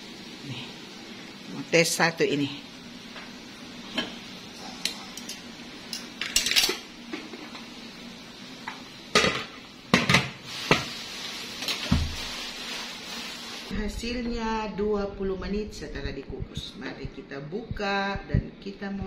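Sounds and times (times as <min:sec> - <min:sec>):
metal tongs clinking on pot: 0:04.8 - 0:06.9.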